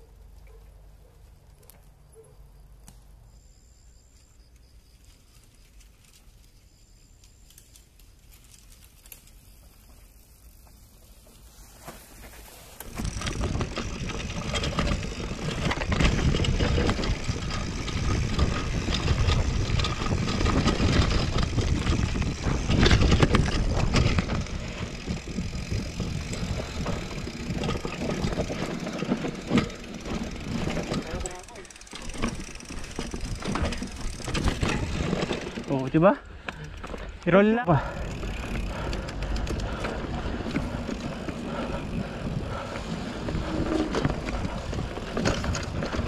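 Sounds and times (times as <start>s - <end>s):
quiet forest ambience: 0.0s - 46.0s
bike rattling over bumps: 4.9s - 46.0s
bike tyres rumbling on dirt: 4.9s - 46.0s
wind on microphone: 13.0s - 28.5s.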